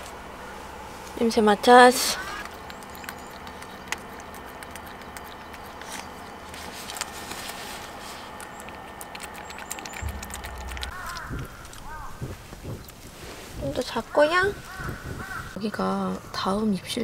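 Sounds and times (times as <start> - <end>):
steady low hum: 0.0 - 17.0
dog licking wet clicks: 2.4 - 11.9
soft low rustle: 10.0 - 15.5.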